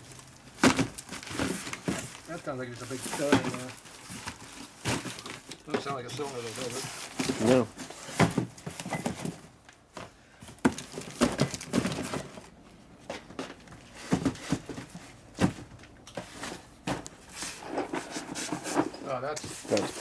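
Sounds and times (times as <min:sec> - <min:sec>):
cardboard rustling: 0:00.0 - 0:20.0
boxes thumping on rubber mat: 0:00.5 - 0:02.2, 0:03.1 - 0:12.5, 0:13.1 - 0:17.2.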